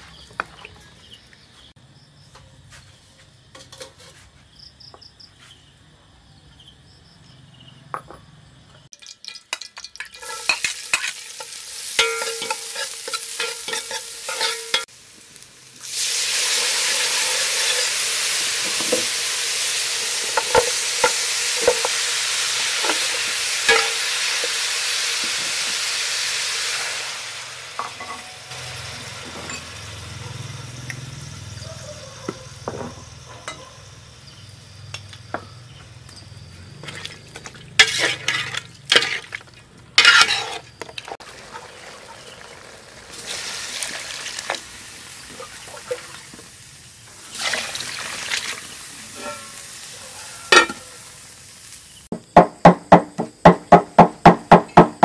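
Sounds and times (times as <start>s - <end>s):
kitchen clatter: 3.5s - 4.2s, 8.9s - 14.9s, 22.8s - 24.1s, 27.8s - 28.6s, 36.8s - 41.2s, 49.0s - 49.7s, 50.3s - 50.9s
loud sizzling hiss: 10.0s - 31.6s, 41.3s - 52.1s.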